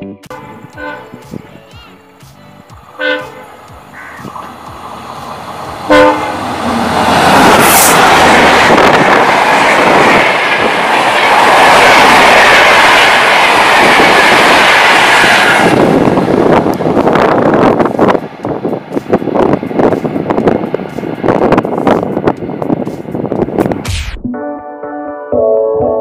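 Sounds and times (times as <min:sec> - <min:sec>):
locomotive horn blast: 0:00.3 - 0:01.3, 0:03.0 - 0:03.6, 0:05.9 - 0:08.0
train passing at speed: 0:00.3 - 0:23.8.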